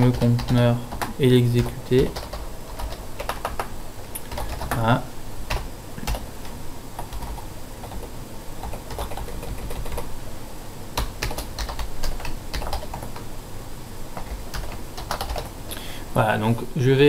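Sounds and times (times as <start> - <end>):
typing on a computer keyboard: 0.0 - 4.8, 7.0 - 10.1, 11.0 - 13.2, 14.2 - 15.5.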